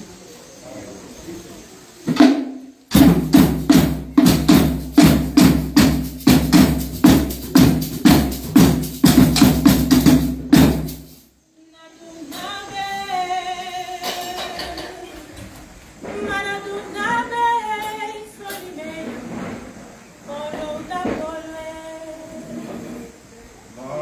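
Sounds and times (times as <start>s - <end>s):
hand drum beating: 2.2s - 11.2s
person singing: 11.6s - 19.2s.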